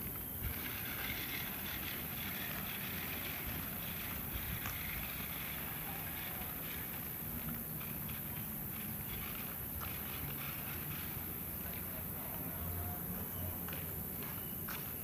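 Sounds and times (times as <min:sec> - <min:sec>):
wind noise on microphone: 0:00.0 - 0:11.6
toy car electric motor whir: 0:00.4 - 0:11.4.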